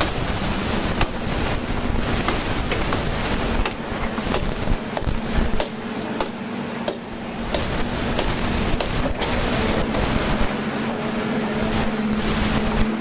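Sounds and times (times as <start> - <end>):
machete chopping branches: 0.9 - 1.4, 2.0 - 10.0.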